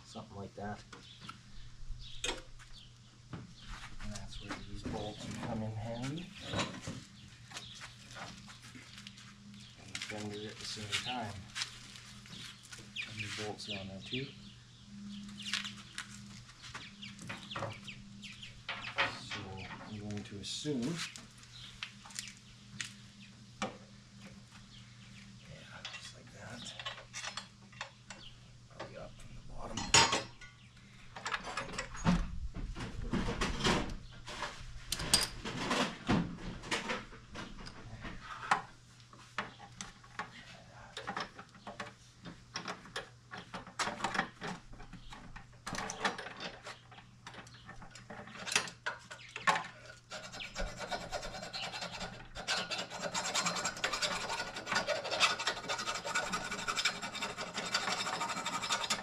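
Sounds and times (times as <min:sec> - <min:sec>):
rubbing and scratching: 0:03.6 - 0:13.8, 0:42.7 - 0:59.0.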